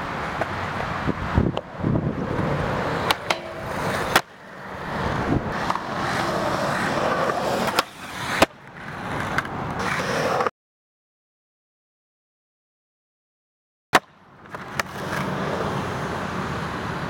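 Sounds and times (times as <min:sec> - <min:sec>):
skateboard wheels rolling on concrete: 0:00.0 - 0:10.5, 0:14.0 - 0:17.0
skateboard clacks: 0:01.5 - 0:10.5, 0:14.0 - 0:17.0.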